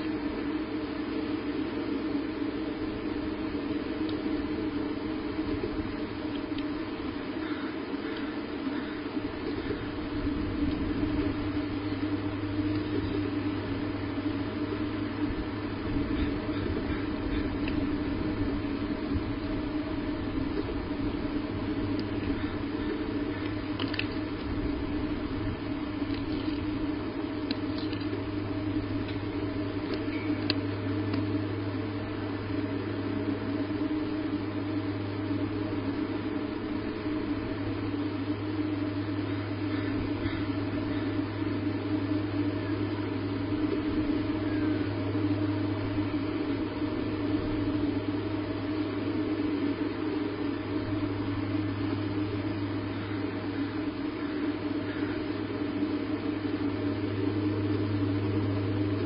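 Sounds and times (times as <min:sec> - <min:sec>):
low hum and hiss: 0:00.0 - 0:59.0
faint clicks: 0:17.6 - 0:17.8, 0:21.9 - 0:24.6, 0:27.4 - 0:28.2, 0:29.0 - 0:31.3.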